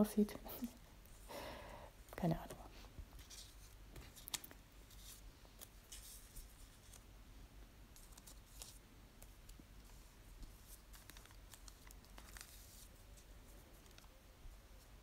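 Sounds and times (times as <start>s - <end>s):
paper rustling and crinkling: 3.1s - 7.1s, 7.9s - 15.0s.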